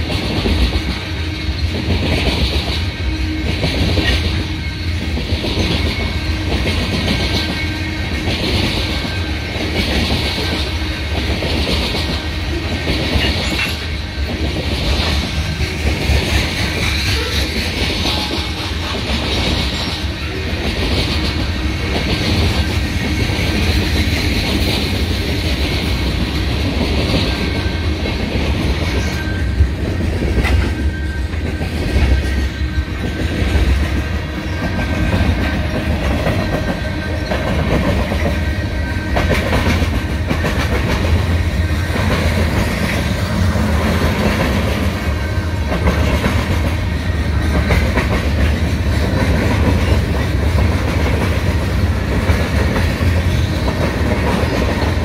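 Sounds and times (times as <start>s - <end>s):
train rumbling past: 0.0s - 55.0s.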